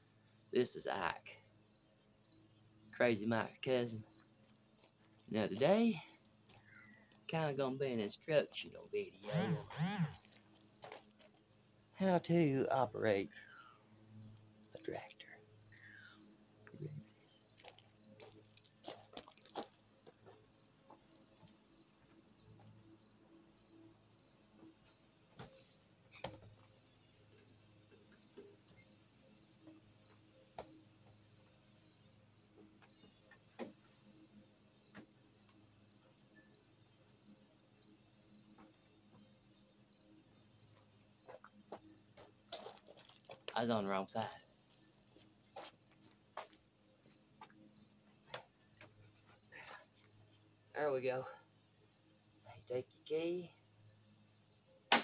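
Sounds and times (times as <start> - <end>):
high-pitched insect chorus: 0.0 - 55.0
insect chirping: 0.0 - 55.0
faint knocks and clunks: 25.4 - 26.8.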